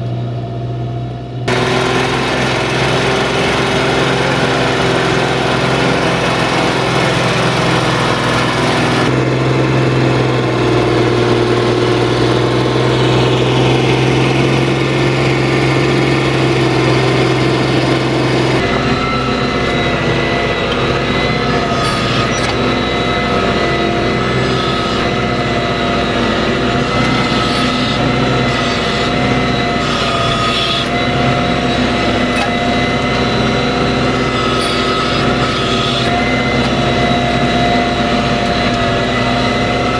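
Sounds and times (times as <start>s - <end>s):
diesel tractor engine running hard: 0.0s - 39.9s
steady whine: 0.0s - 39.9s.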